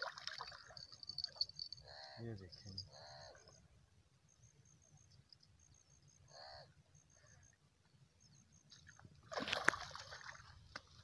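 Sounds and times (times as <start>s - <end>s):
fish thrashing and splashing in water: 0.0s - 1.5s, 9.2s - 11.0s.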